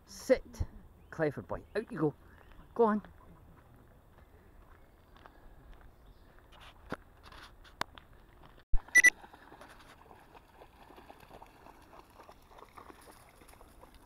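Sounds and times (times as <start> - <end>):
quick high electronic beeps: 8.9 - 9.1.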